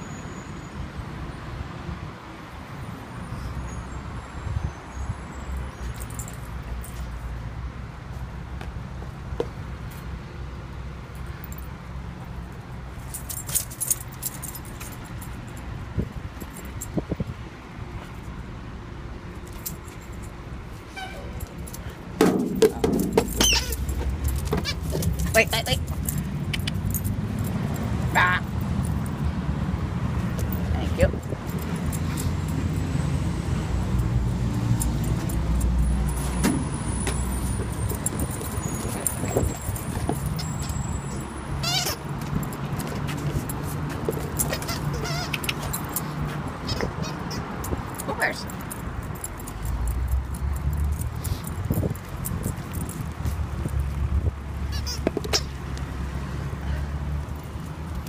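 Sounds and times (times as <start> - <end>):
street traffic rumble: 0.0 - 58.0
metal chain collar jingling: 5.8 - 7.2, 13.0 - 15.7, 22.7 - 29.3, 30.3 - 54.0.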